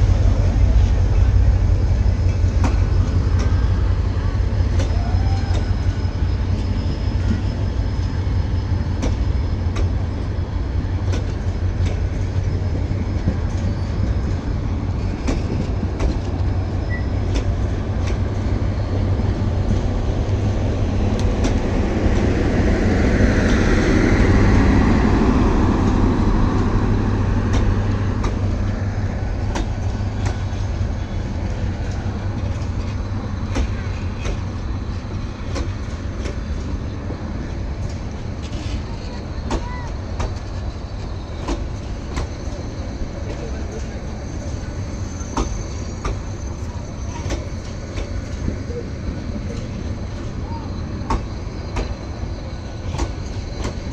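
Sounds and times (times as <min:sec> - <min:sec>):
train rumbling past: 0:00.0 - 0:53.9
wheels clacking over rail joints: 0:25.0 - 0:53.9.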